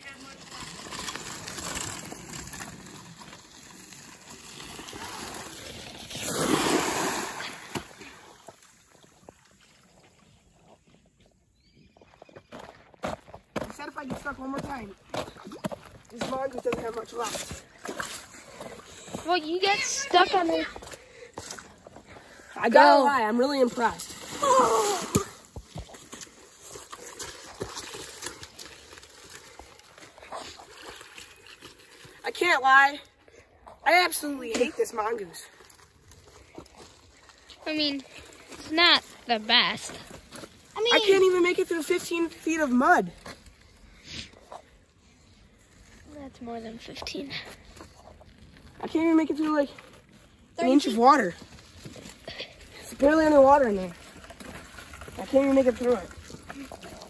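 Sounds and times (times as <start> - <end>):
water splashing and sloshing: 0.0 - 11.0, 14.4 - 57.0
bicycle splashing into puddle: 0.2 - 9.0, 23.4 - 32.6, 50.6 - 57.0
footsteps on wet gravel: 8.5 - 22.6, 25.0 - 32.4, 34.8 - 44.8, 45.4 - 57.0
person shouting: 24.4 - 25.2.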